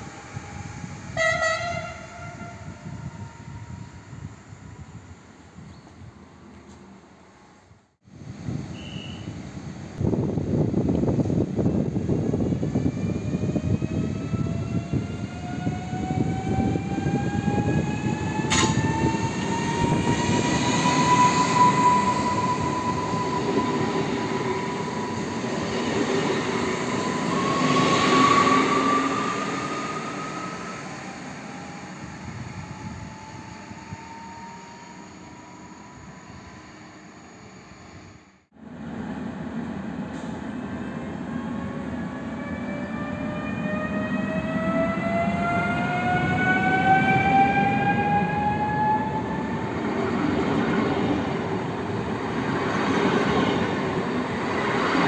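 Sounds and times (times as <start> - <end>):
train wheels rumbling on rails: 9.6 - 35.3, 38.8 - 55.0
electric train traction whine: 10.0 - 55.0
sharp click: 18.5 - 18.8.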